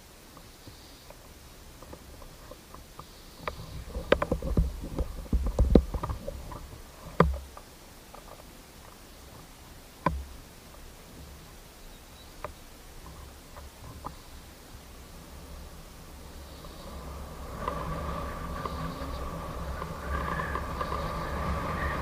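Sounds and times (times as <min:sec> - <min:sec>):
knocks and thumps on microphone: 0:03.9 - 0:06.3.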